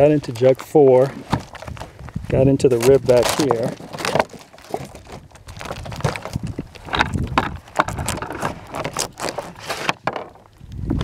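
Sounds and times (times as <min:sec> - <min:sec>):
cloth and plastic jugs rustling: 0:00.0 - 0:10.5.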